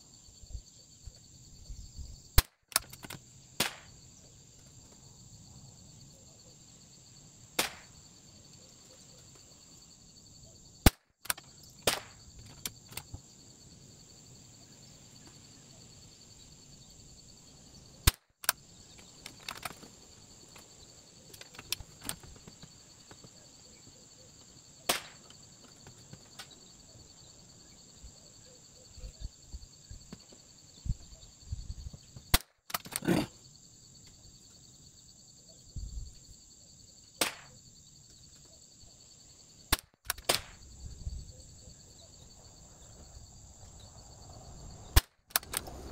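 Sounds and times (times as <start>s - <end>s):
rounds being handled: 2.7s - 3.2s, 18.4s - 20.7s, 21.3s - 23.4s, 32.7s - 33.2s
sharp rifle shots: 7.6s - 7.9s.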